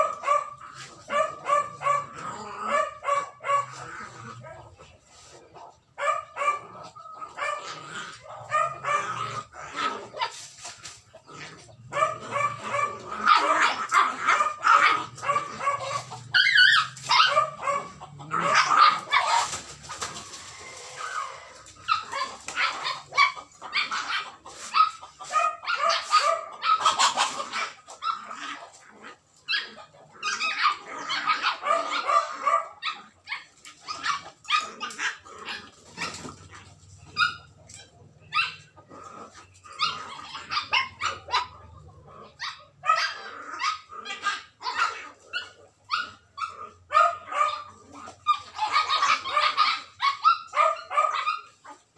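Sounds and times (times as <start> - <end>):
puppies yipping and barking: 0.0 - 51.9.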